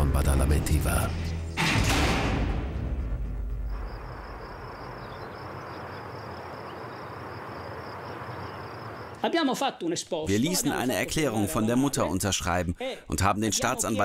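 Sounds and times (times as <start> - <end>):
insect chirring: 3.4 - 9.2
outdoor hiss: 3.7 - 9.4.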